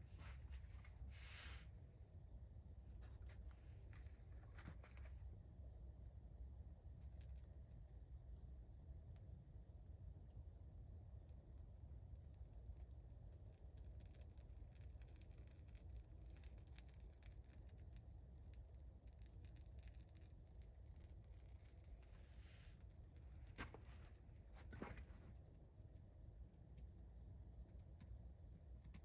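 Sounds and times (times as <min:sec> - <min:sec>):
soft rustle and click: 0:00.1 - 0:01.6, 0:03.0 - 0:05.4, 0:07.0 - 0:08.0, 0:11.2 - 0:26.0, 0:26.7 - 0:29.0
bark crackling as it burns: 0:12.2 - 0:24.7.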